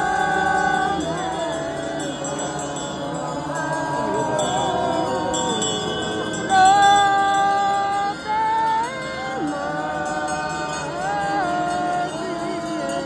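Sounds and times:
bells jingling: 0.0 - 13.0.

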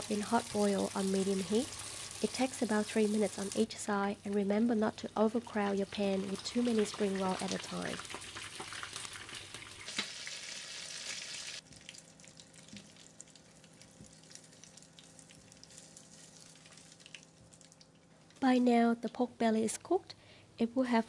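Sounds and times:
food sizzling in hot oil: 0.0 - 3.7, 6.2 - 11.6.

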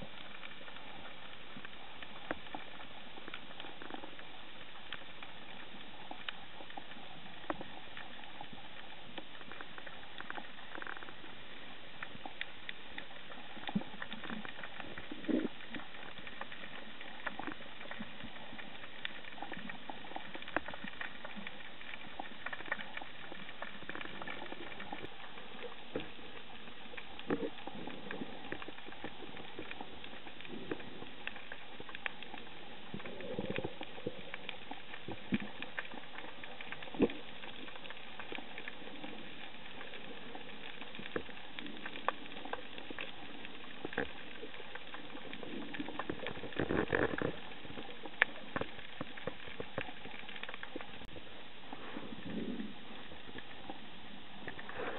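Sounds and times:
small clicks and crackles: 0.0 - 54.9
underwater hiss: 51.6 - 53.7, 54.3 - 54.9.

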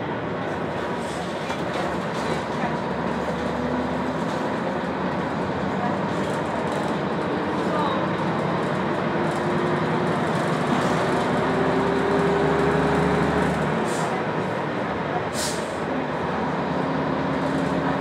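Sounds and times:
bus diesel engine: 0.0 - 18.0
short air hisses: 15.4 - 15.8.

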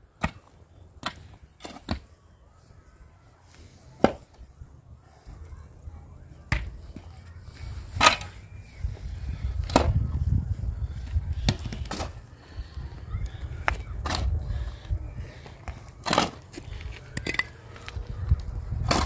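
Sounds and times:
pickaxe striking stony soil: 16.0 - 16.4.

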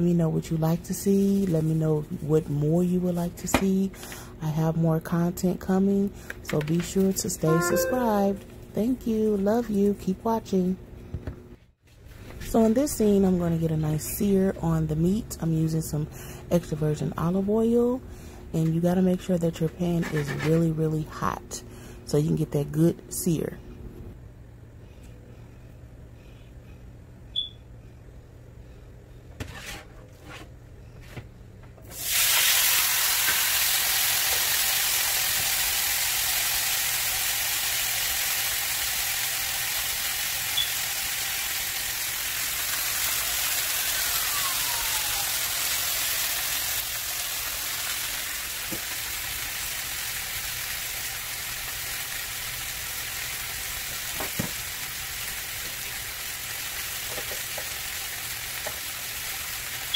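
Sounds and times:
meat sizzling in hot oil: 31.9 - 59.9.

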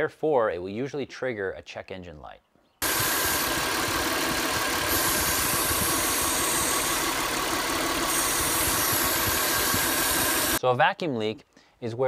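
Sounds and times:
car engine idling: 2.8 - 10.6
vacuum leak hiss: 4.6 - 10.6.

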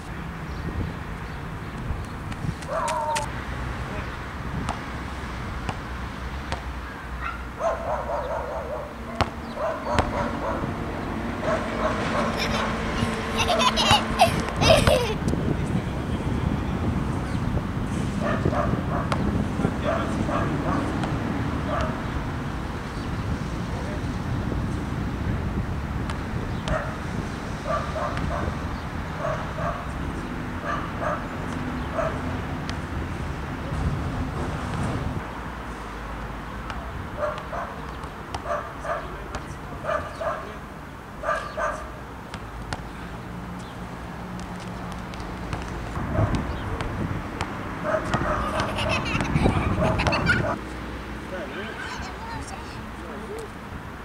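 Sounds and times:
wind rumbling on microphone: 0.0 - 6.0, 14.0 - 35.6, 45.4 - 50.6
basketball bouncing on court: 9.2 - 10.2, 44.4 - 50.3.

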